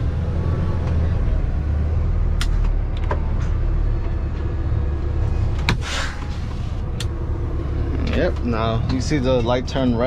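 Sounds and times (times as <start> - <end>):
diesel truck engine idling: 0.0 - 10.0
short hiss of air: 5.8 - 6.4.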